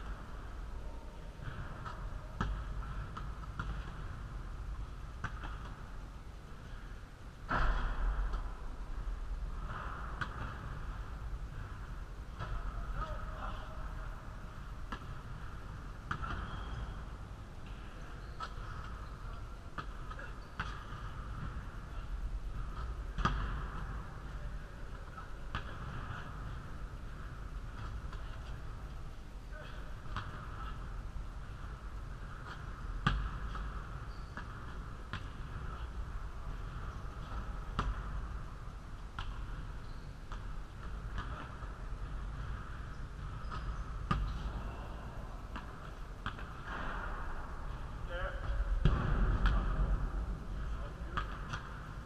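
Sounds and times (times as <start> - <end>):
steady background hum: 0.0 - 52.0
basketball knocks and thumps: 22.6 - 24.0, 36.8 - 38.2, 43.4 - 44.6, 48.4 - 50.1
basketball thuds on gym floor: 48.7 - 50.0.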